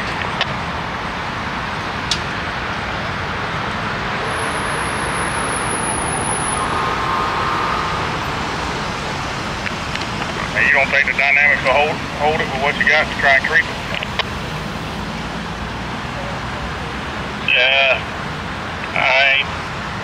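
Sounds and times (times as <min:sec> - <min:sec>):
vehicle road noise: 0:00.0 - 0:20.0.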